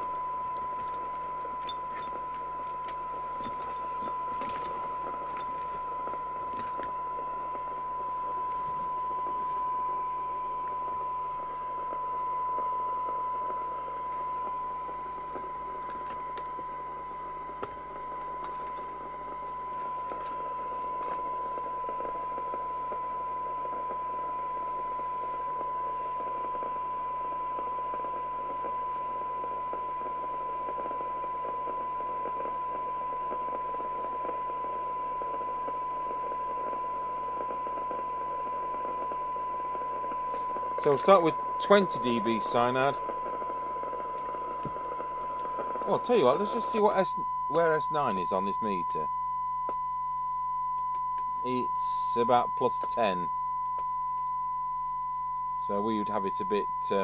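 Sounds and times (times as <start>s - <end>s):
whistle-like test tone: 45.3s - 57.0s.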